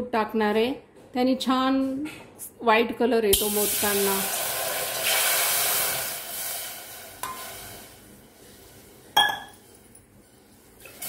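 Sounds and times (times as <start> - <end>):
water pouring into metal pot: 3.4 - 8.0.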